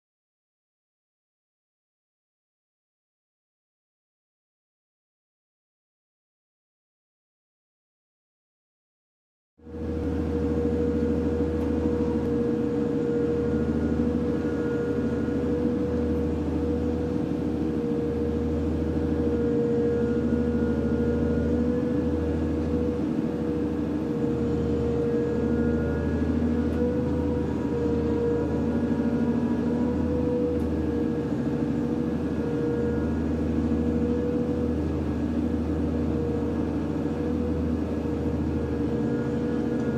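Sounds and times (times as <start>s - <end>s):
boat engine hum: 9.6s - 39.9s
conveyor whine: 9.6s - 39.9s.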